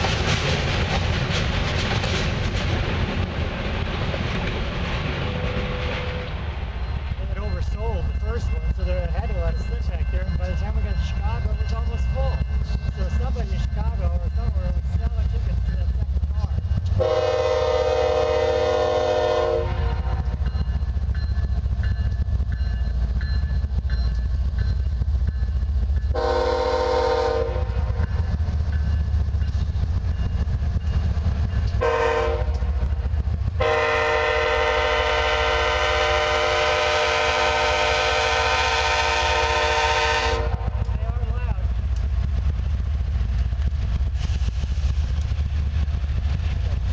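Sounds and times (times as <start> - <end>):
train rumbling: 0.0 - 46.9
locomotive air horn blasts: 17.0 - 20.2, 26.2 - 28.0, 31.8 - 32.8, 33.6 - 40.8.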